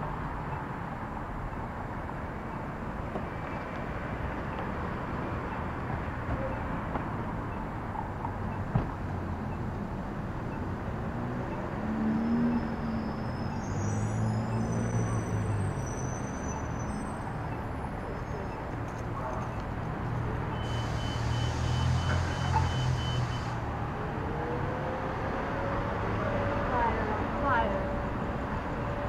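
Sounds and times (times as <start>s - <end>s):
cars passing: 0.0s - 29.0s
steady beeping: 0.4s - 19.8s.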